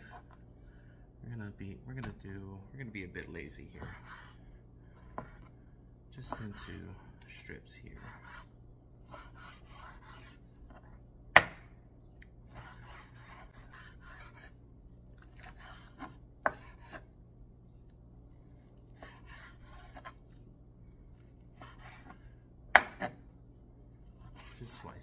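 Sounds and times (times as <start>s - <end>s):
knife slicing raw meat: 15.3s - 17.1s, 19.0s - 20.2s, 21.6s - 22.2s, 22.8s - 23.2s.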